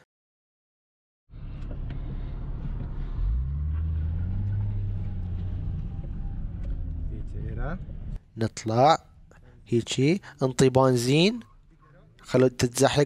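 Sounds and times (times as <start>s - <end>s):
car engine accelerating: 1.3s - 8.2s.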